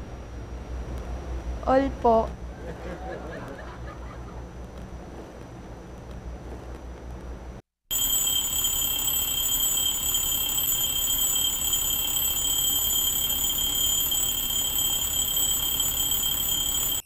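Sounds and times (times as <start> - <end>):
alarm clock ringing: 7.9 - 17.0.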